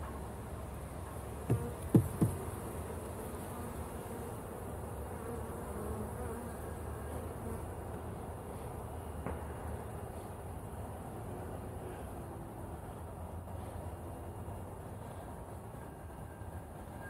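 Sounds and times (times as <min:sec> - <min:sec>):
honeybees buzzing: 0:01.2 - 0:08.7
sharp knocks: 0:01.5 - 0:02.5.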